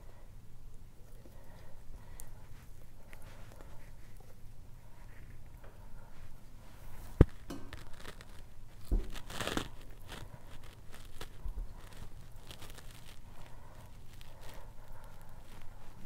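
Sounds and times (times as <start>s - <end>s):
rustling: 1.0s - 16.0s
sausage casing tearing and squishing: 7.0s - 16.0s.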